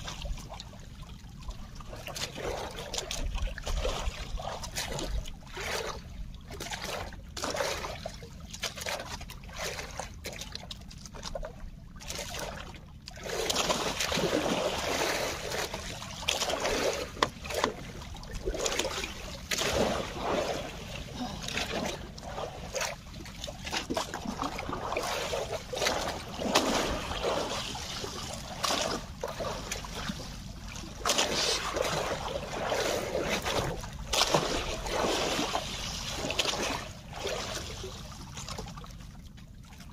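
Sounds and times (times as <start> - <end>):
water splashing around boat: 0.0 - 39.9.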